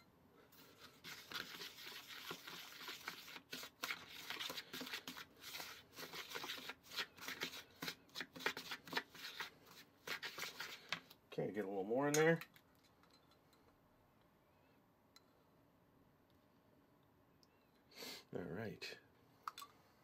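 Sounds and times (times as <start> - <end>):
wooden spoon scraping plastic bowl: 0.6 - 11.2.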